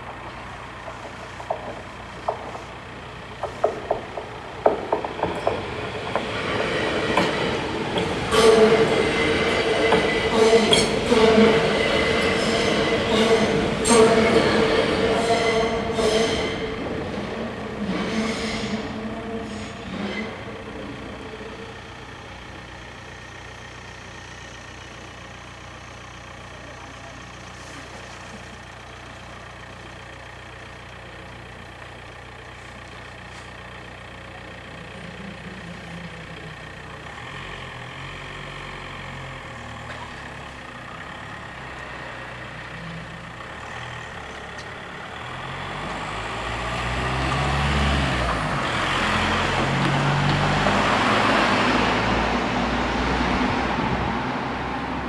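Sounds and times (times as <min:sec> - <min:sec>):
car engines idling: 0:00.0 - 0:55.0
car driving past: 0:43.7 - 0:55.0.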